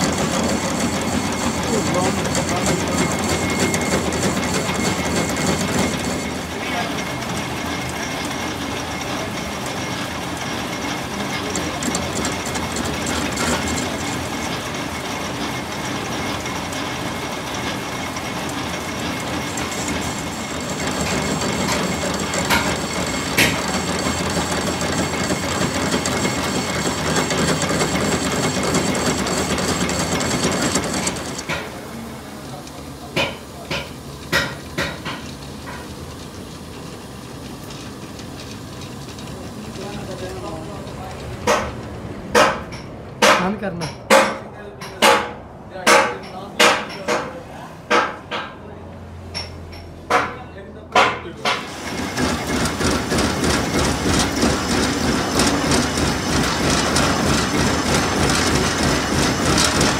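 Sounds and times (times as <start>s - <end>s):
steady high whine: 0.0s - 11.9s
metal lathe cutting: 0.0s - 41.8s, 51.0s - 59.9s
sharp knocks: 41.4s - 48.6s.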